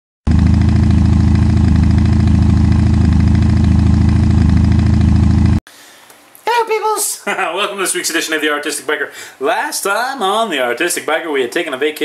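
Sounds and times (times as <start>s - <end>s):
motorcycle engine idling: 0.3s - 5.6s.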